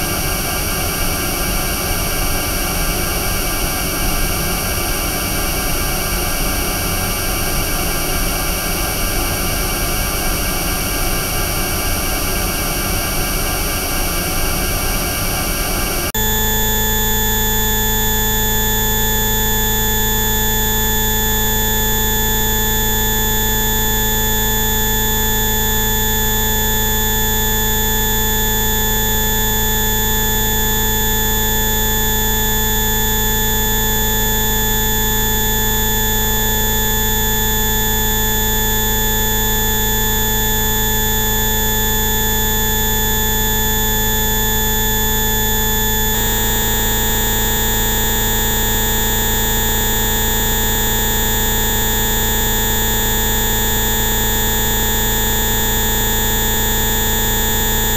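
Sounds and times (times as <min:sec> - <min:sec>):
electronic frequency tones: 0:16.2 - 0:57.9.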